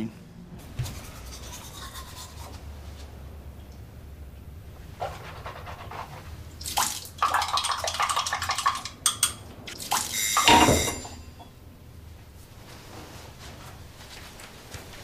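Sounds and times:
water splashing on face: 6.6 - 9.0
water running from tap: 6.6 - 11.0.

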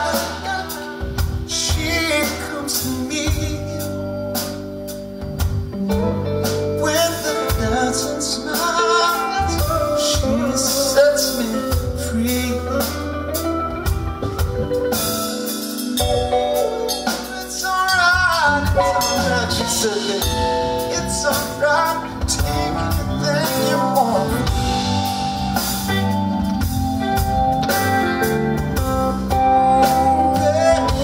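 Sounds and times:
man singing: 0.0 - 4.4, 6.7 - 13.8, 16.0 - 25.4, 28.6 - 31.0
bass guitar: 0.0 - 31.0
drum kit: 0.0 - 31.0
electric guitar: 0.0 - 31.0.

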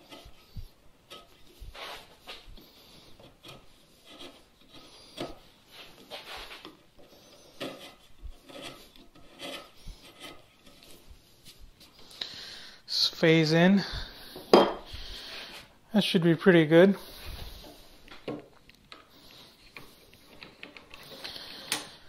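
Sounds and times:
chisel scraping wood: 0.0 - 11.9.

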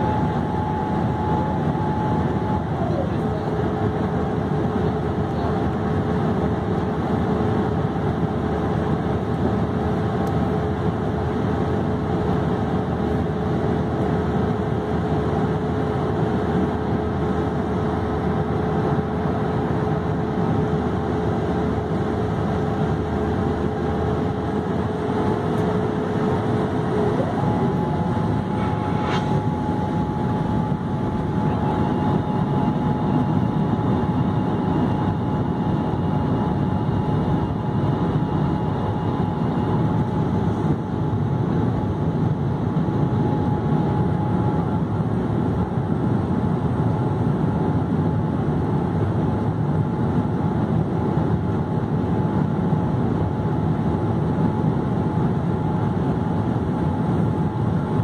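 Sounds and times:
aircraft cabin engine and airflow rush: 0.0 - 58.0
thin steady hum: 22.2 - 46.0.

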